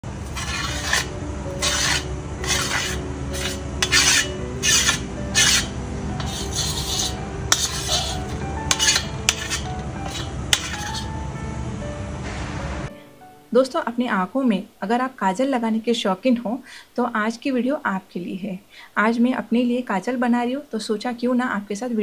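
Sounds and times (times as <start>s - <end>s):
background music: 0.0s - 15.8s
spoon scraping metal plate: 0.2s - 11.1s.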